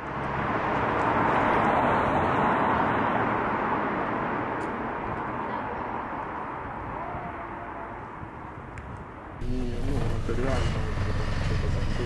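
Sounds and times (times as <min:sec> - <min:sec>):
vehicle passing: 0:00.0 - 0:05.0, 0:09.4 - 0:12.0.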